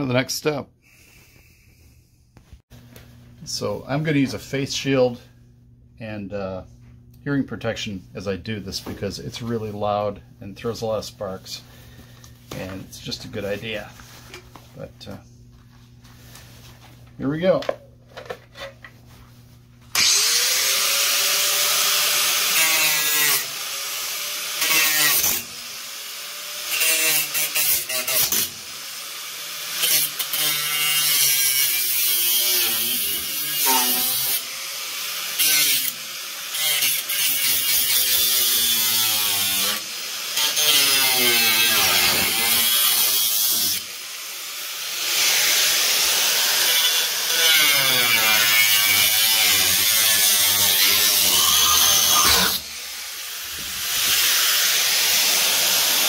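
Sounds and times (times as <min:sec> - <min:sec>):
angle grinder cutting sheet steel: 0:19.9 - 0:56.0.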